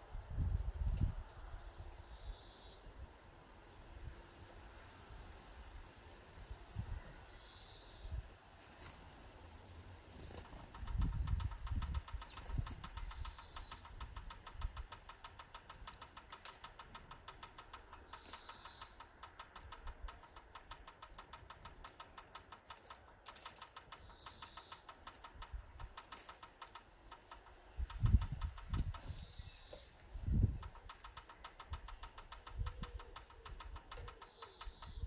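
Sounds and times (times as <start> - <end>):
small bird calling: 1.7 - 2.9, 6.8 - 8.2, 10.2 - 35.0
fast even ticking: 10.2 - 35.0.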